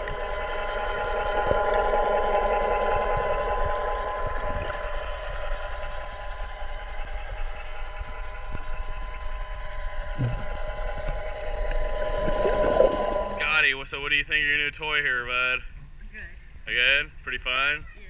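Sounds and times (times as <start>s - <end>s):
underwater thruster whining: 0.0s - 15.0s
low thump: 10.2s - 13.3s.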